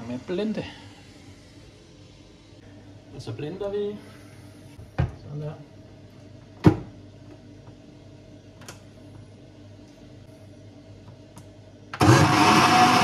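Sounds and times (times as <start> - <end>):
electric blender running: 12.0 - 13.0.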